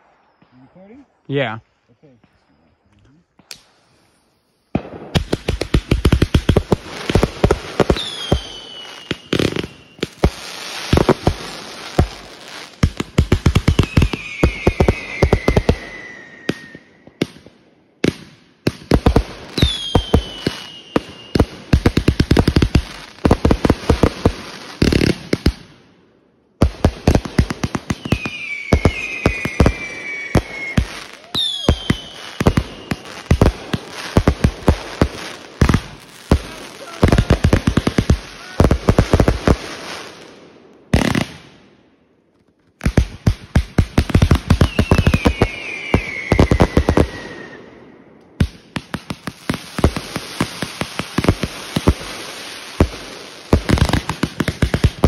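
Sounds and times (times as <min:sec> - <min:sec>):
crackling firework bursts: 0:00.0 - 0:02.5, 0:03.3 - 0:25.9, 0:26.6 - 0:41.8, 0:42.4 - 0:55.0
fireworks bangs: 0:04.7 - 0:25.8, 0:26.6 - 0:41.7, 0:42.8 - 0:55.0
whistles falling in pitch: 0:13.8 - 0:17.0, 0:28.1 - 0:33.1, 0:44.7 - 0:47.7.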